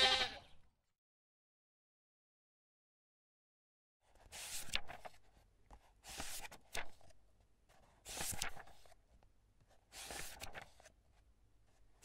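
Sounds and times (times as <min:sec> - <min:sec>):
book pages turning: 0:04.1 - 0:12.0.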